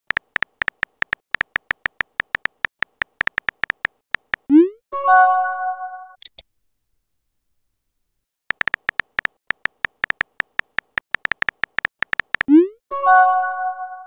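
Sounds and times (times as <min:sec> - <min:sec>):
simulated keyboard typing ticks: 0:00.1 - 0:04.7, 0:08.5 - 0:12.8.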